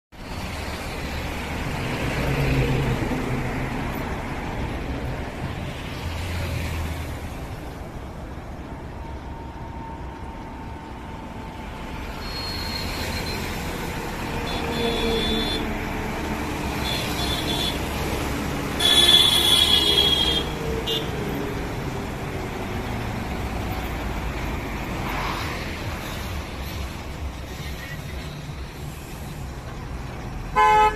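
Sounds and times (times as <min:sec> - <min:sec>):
highway traffic passing: 0:00.1 - 0:30.9
vehicle horn toots: 0:14.4 - 0:15.8, 0:18.8 - 0:21.1, 0:30.5 - 0:30.9.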